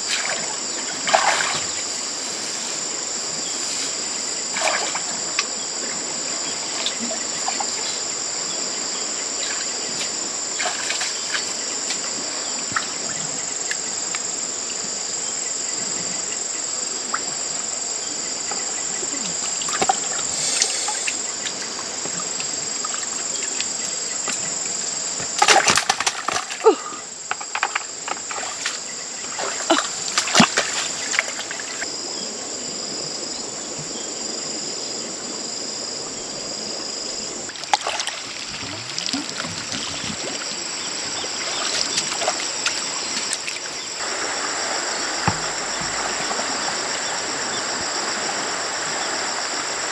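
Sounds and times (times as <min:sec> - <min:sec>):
insects droning: 0:00.0 - 0:49.9
shallow water splashing: 0:00.1 - 0:02.0, 0:37.5 - 0:49.7.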